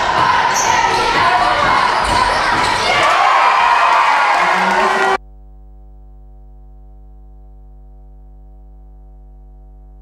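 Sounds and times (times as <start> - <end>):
steady electrical hum: 5.2 - 10.0.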